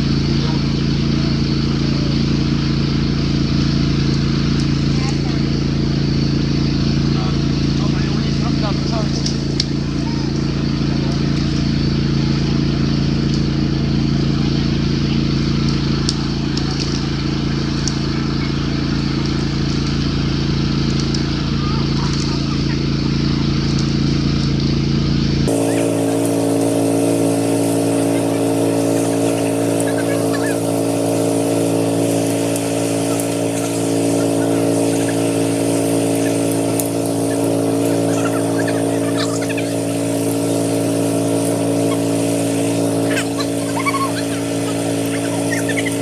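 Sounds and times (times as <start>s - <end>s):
vehicle engine idling: 0.0s - 46.0s.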